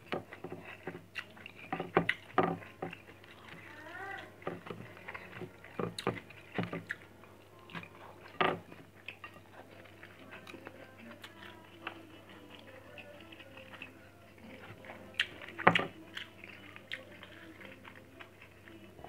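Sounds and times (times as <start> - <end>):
person chewing food: 0.0 - 19.0.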